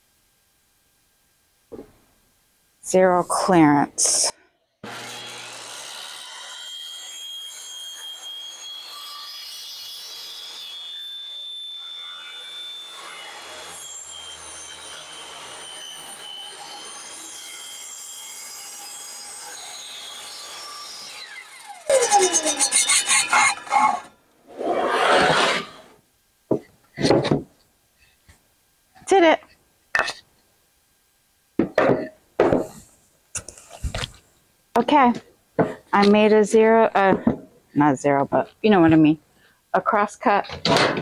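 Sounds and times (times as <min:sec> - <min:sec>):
table saw cutting wood: 0:04.8 - 0:26.0.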